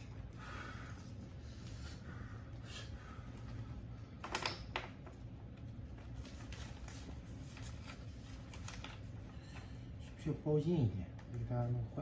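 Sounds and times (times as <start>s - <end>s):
paper rustling: 5.7s - 9.7s.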